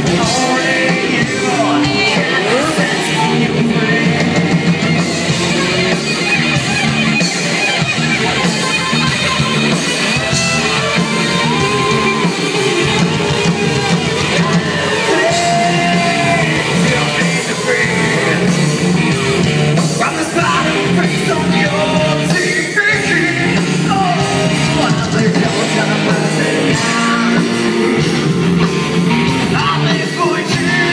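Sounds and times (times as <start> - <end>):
person singing: 0.0 - 6.0, 8.2 - 19.0, 19.8 - 28.0, 29.2 - 30.9
live rock band: 0.0 - 30.9.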